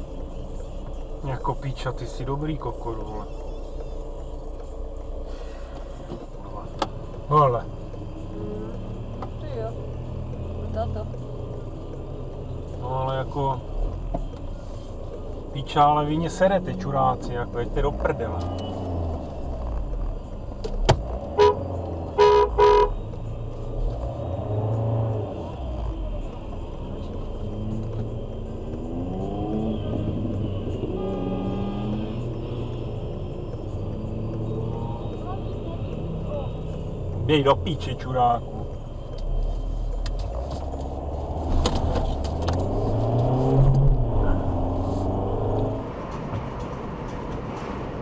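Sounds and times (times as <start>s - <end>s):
car engine idling: 0.0s - 48.0s
car horn toots: 21.2s - 23.0s.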